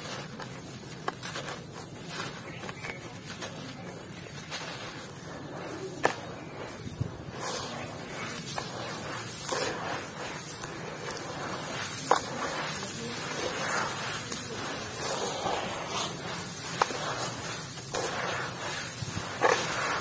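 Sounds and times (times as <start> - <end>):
wet concrete mix squelching: 0.0 - 20.0.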